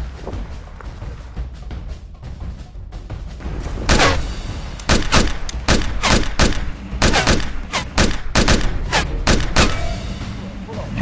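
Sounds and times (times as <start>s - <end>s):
handgun shots: 3.9s - 4.2s, 4.8s - 9.9s.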